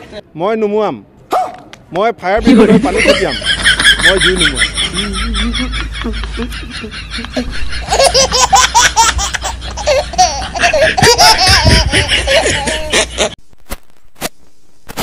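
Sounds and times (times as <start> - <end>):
hearty laughter: 2.4 - 13.4.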